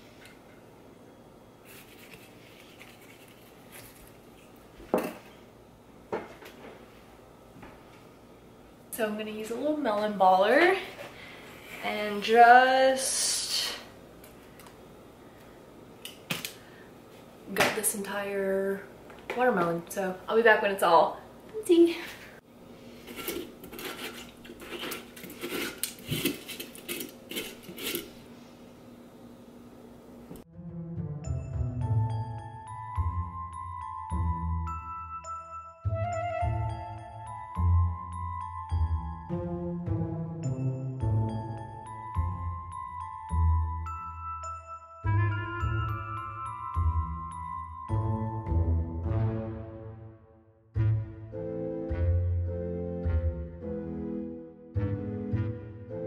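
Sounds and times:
knife scraping melon rind: 1.7s - 4.2s, 23.0s - 28.2s.

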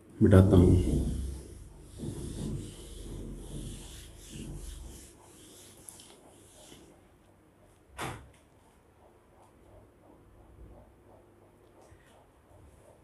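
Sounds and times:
eraser rubbing on whiteboard: 0.4s - 7.1s.

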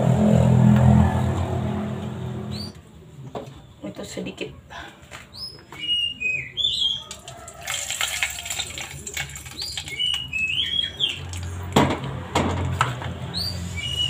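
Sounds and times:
small birds chirping: 2.5s - 2.8s, 9.4s - 11.6s.

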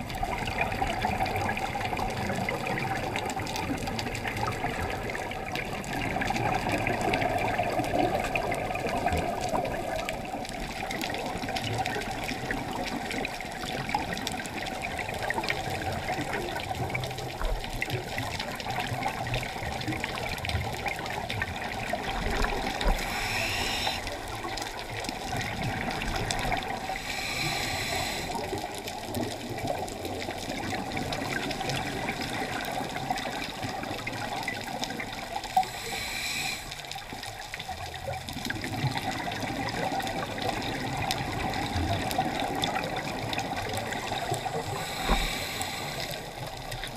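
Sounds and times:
underwater regulator bubbling: 19.8s - 29.8s, 38.4s - 46.9s
regulator hissing surges: 23.0s - 24.0s.

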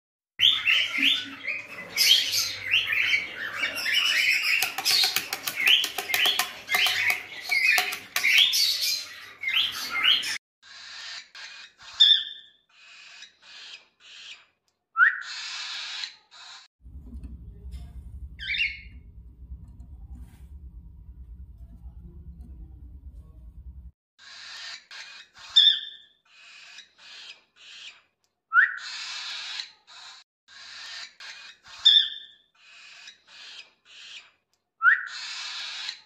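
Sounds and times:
cockatiel chicks cheeping: 0.4s - 16.7s, 18.3s - 19.2s, 24.2s - 36.0s
low steady hum: 16.8s - 23.9s.

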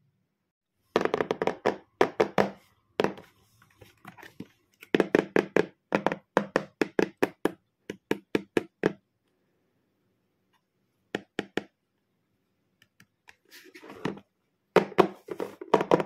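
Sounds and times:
fingers tapping on cardboard box: 4.8s - 9.0s.

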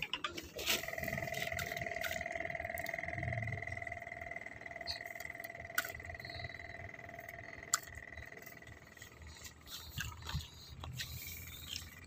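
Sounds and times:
frog trilling: 1.0s - 9.4s.

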